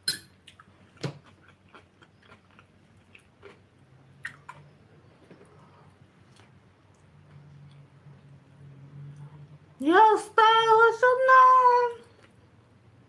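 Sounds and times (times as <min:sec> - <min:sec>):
person chewing: 0:00.4 - 0:07.9.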